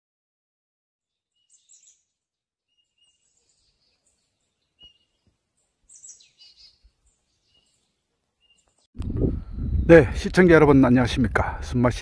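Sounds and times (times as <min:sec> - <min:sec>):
faint birds chirping: 0:01.0 - 0:10.2.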